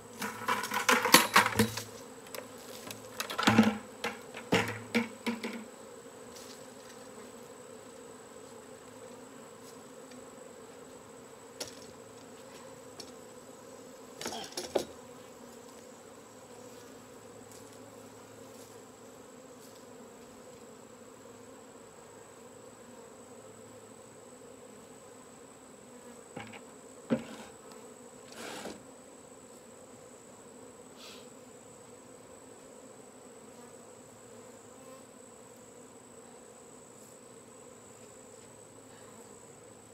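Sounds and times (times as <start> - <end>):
bee swarm buzzing: 0.0 - 39.9
short knocks and rustles: 26.4 - 27.5.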